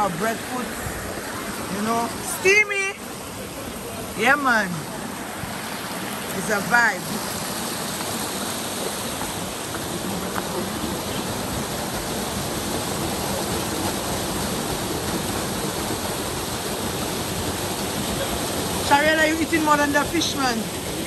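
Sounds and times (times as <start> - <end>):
river water over rocks: 0.0 - 21.0.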